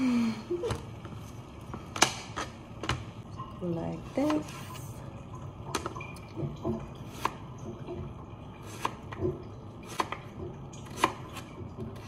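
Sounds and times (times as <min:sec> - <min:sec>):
knife cutting cucumber on board: 0:07.0 - 0:07.4, 0:08.6 - 0:12.0.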